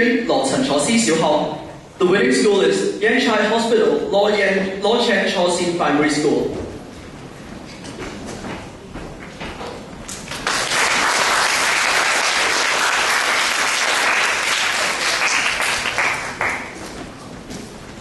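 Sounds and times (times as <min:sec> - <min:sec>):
audience applauding: 0:10.2 - 0:17.0.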